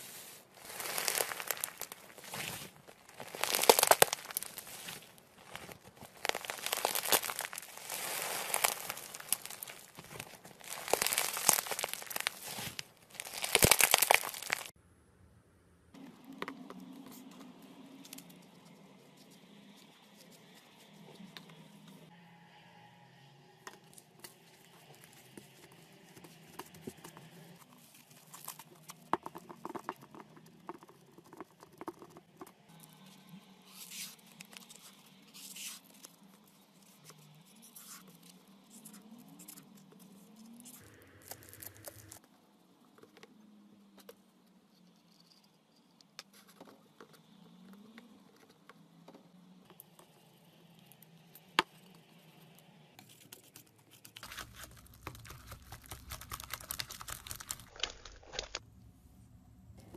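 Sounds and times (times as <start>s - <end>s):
slime crackling and popping: 0.6s - 14.7s, 40.6s - 42.2s, 54.2s - 58.6s.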